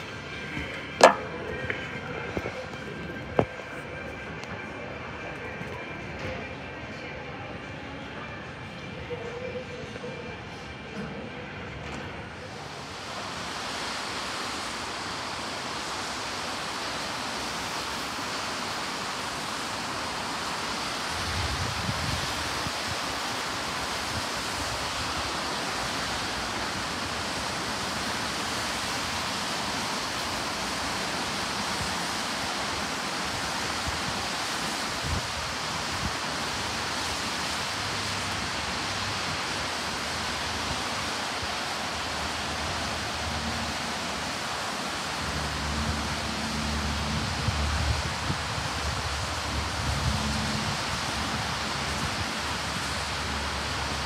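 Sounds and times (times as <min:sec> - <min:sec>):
rain hiss: 0:12.3 - 0:54.0
car tyres on wet road: 0:12.4 - 0:54.0
low rumble of passing cars: 0:18.6 - 0:54.0.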